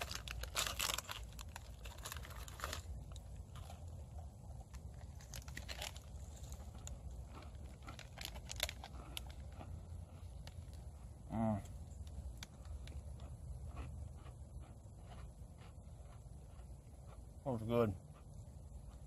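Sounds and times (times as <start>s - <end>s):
pouch crinkling: 0.0s - 3.8s, 4.9s - 9.5s
person chewing cookie: 0.0s - 19.0s.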